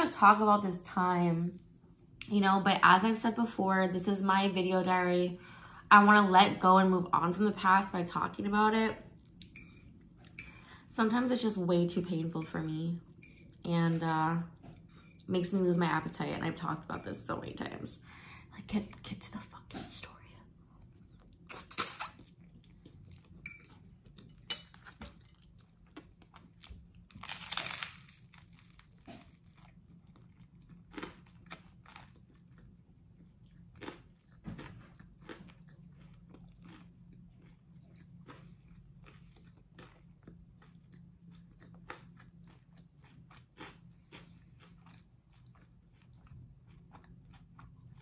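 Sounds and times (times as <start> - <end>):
crunching bread bites: 24.1 - 48.0.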